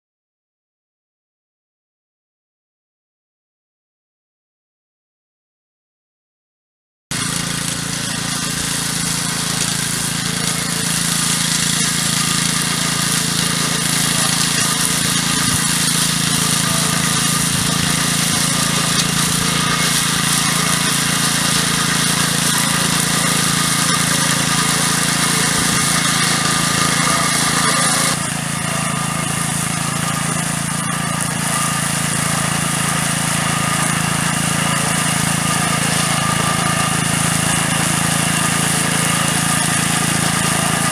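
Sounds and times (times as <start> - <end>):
small petrol engine running: 7.1 - 40.9.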